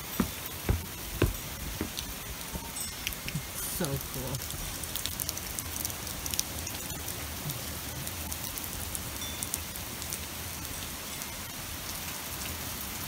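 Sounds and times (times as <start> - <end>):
hail ticking on deck and railing: 0.0 - 8.9
heavy rain hissing: 0.0 - 10.8.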